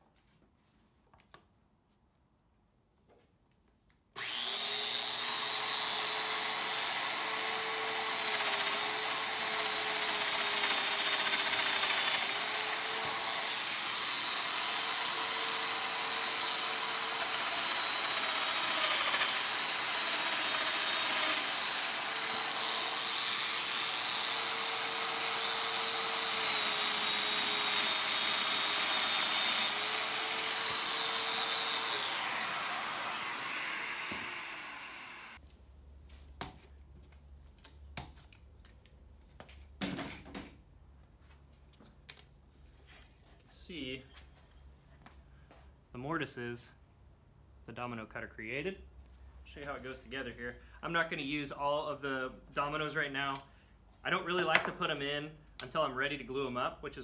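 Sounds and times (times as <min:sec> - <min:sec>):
joiner motor whining: 0:04.2 - 0:35.4.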